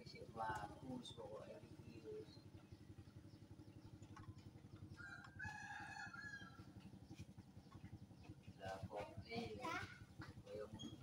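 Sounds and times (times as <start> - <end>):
rooster crowing: 5.0 - 6.7.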